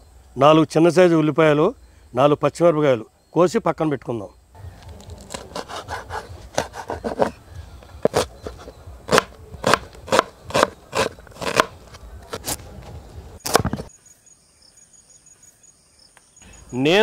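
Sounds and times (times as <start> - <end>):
knife chopping onion on board: 5.2 - 7.4, 8.0 - 11.7.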